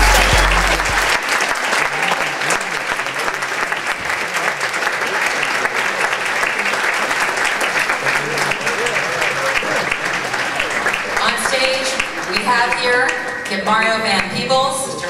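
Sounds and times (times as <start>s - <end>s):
deep bass of hip-hop track: 0.0s - 1.2s
audience applauding: 0.0s - 14.5s.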